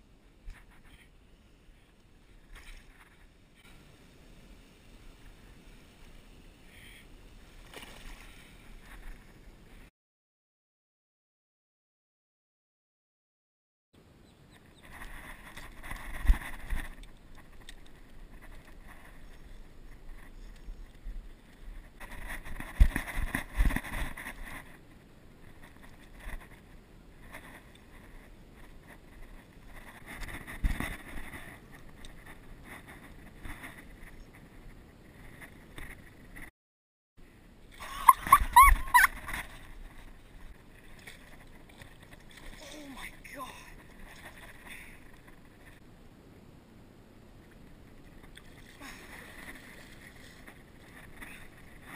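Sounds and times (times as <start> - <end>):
wind rumbling on microphone: 14.0 - 36.5, 37.2 - 51.9.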